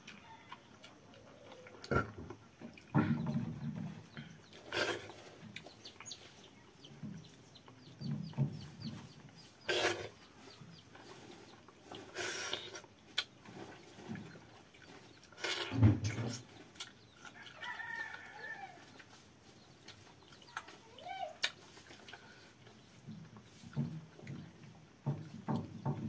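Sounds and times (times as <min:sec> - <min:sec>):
person chewing: 0:11.9 - 0:13.5, 0:14.7 - 0:18.3.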